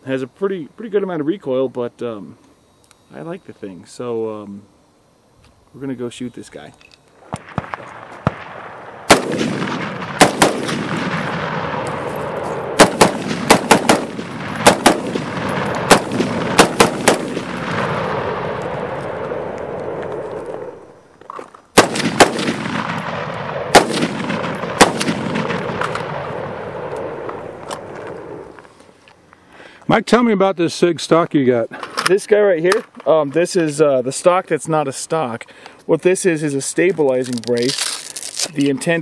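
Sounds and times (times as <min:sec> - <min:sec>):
semi-automatic gunshots: 0:07.3 - 0:20.7, 0:21.7 - 0:28.4.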